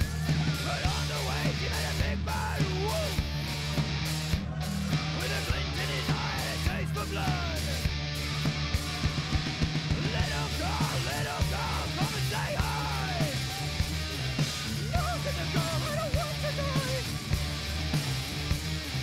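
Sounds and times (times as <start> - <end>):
rock song with shouted vocals: 0.0 - 19.0.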